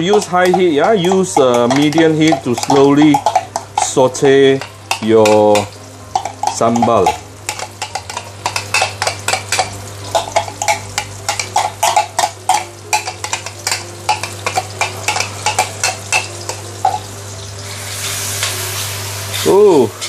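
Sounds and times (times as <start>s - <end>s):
utensil scraping glass bowl: 0.0s - 16.0s.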